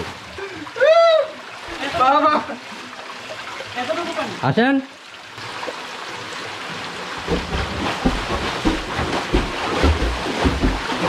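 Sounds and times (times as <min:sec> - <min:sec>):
stream water rushing: 0:00.0 - 0:11.0
people splashing through water: 0:07.2 - 0:11.0.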